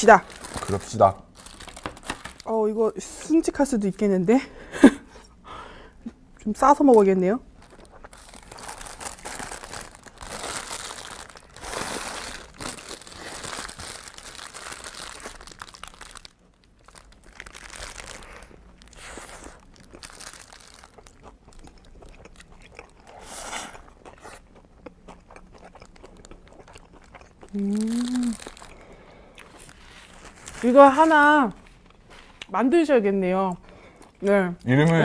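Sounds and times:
paper wrapper crinkling: 0.0 - 2.6, 7.6 - 21.2, 27.6 - 32.3.

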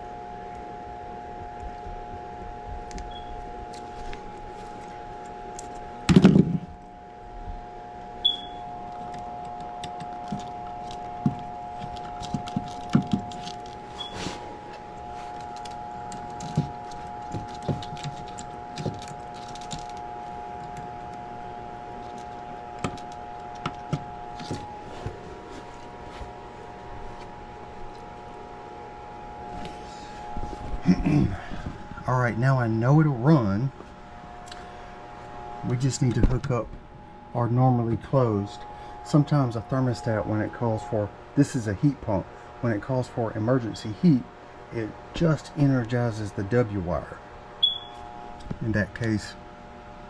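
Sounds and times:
steady high hum: 0.0 - 50.0
pliers and wire clicking: 5.2 - 6.2, 8.4 - 13.9, 14.7 - 21.2, 21.9 - 24.7.

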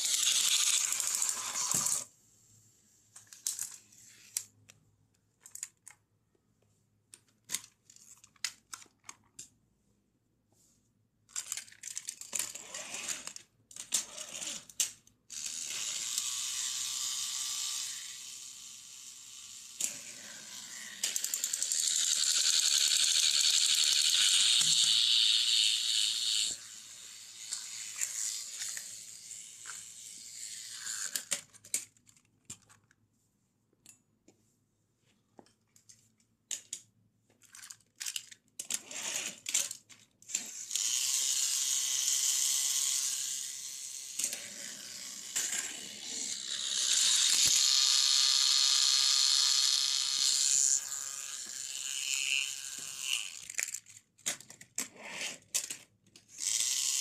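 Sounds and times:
toy train motors whirring: 0.0 - 2.1, 11.3 - 32.0, 37.4 - 57.0
plastic clicks and rattles: 5.4 - 6.0, 7.1 - 9.5, 11.3 - 12.6, 31.0 - 33.0, 35.4 - 40.5, 52.8 - 56.4.

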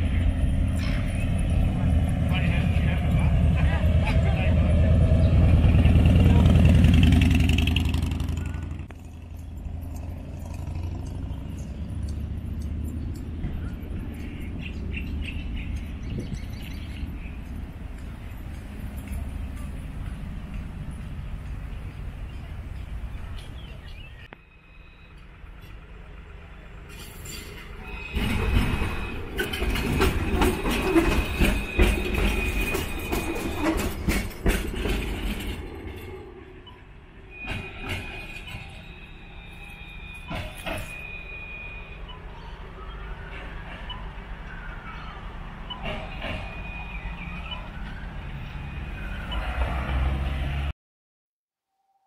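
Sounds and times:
tram passing: 0.0 - 50.7
motorcycle passing by: 3.0 - 13.1
wheels clicking over rail joints: 5.0 - 24.4, 25.1 - 39.4, 40.2 - 41.4, 42.0 - 48.0.

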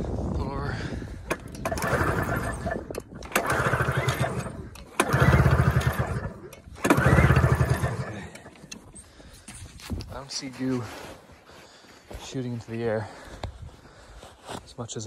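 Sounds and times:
recoil starter pulls: 1.2 - 9.8
engine chuffing when cranked: 1.3 - 9.1.

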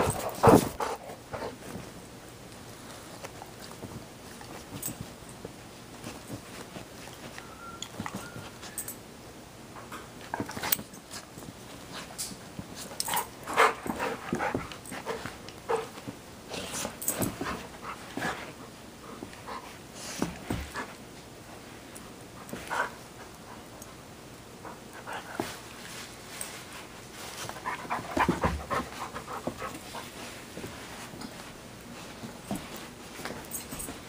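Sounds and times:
dogs scuffling on a dog bed: 0.0 - 9.0, 9.8 - 24.0, 24.6 - 34.0
dog whining: 7.3 - 9.0.

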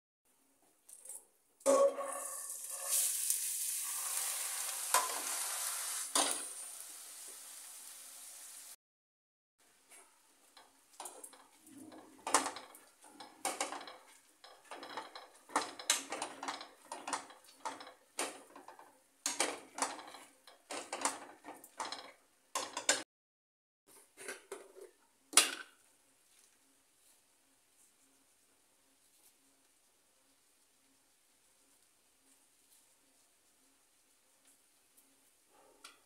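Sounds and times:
masher mashing lentils in a pan: 9.7 - 22.8.

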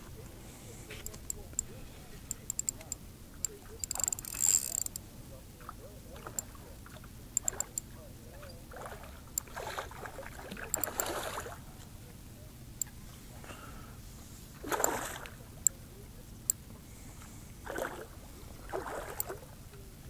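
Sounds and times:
sharp clicks: 0.9 - 5.0, 7.4 - 7.9
fish splashing at water surface: 8.7 - 11.8, 14.6 - 15.4, 17.6 - 19.5.

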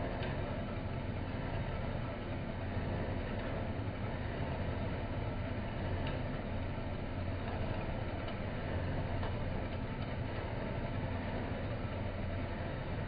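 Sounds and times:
low motor hum: 0.0 - 13.0
faint tick: 6.0 - 6.3.

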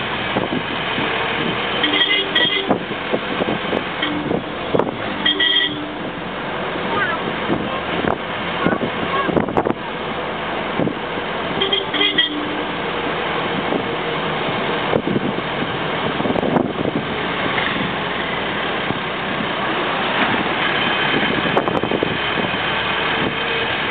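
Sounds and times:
vehicle road and wind noise: 0.0 - 23.9
car horn tooting: 1.7 - 2.8, 4.0 - 4.4, 5.1 - 6.1, 11.6 - 12.7.

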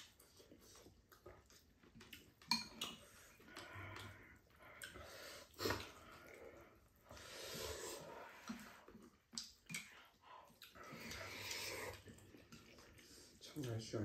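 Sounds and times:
noodles being slurped: 0.0 - 14.0.

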